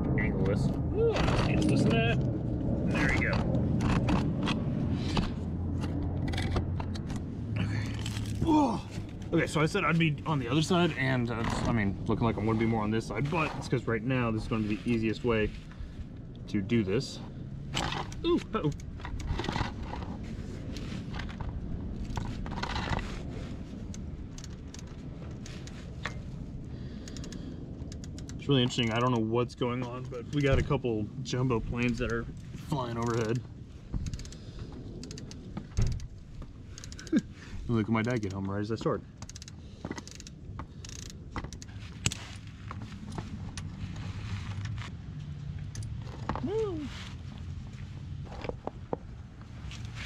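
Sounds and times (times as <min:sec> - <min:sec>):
low rumble: 0:00.0 - 0:50.0
low steady hum: 0:00.0 - 0:50.0
ratchet clicking on a bolt: 0:27.0 - 0:29.2, 0:34.0 - 0:34.4, 0:35.0 - 0:36.1, 0:39.2 - 0:42.2.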